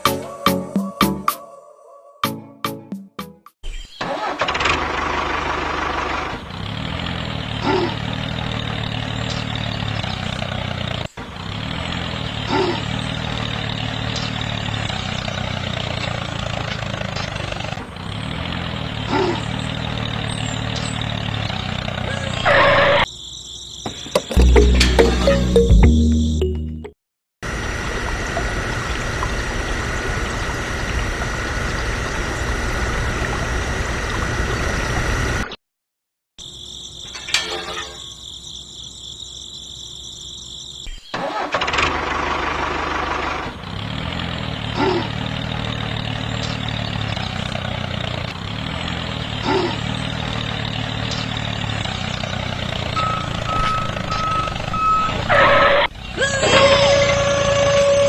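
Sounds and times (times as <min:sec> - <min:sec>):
toy tractor engine idling: 0:04.0 - 0:23.0, 0:41.2 - 0:58.0
held whine: 0:27.4 - 0:35.5, 0:50.2 - 0:58.0
repeating beep: 0:53.0 - 0:55.2.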